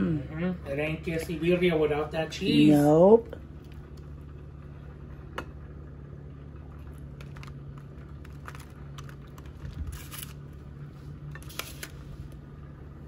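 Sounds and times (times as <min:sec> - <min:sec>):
steady low hum: 0:00.0 - 0:13.0
foil crinkling: 0:06.9 - 0:10.8.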